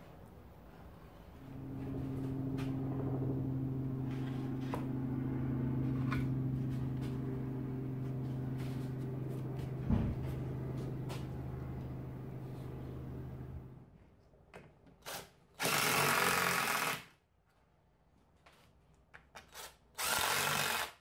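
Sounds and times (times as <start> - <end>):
low machine hum: 0.1 - 13.8
short thump: 9.6 - 11.3.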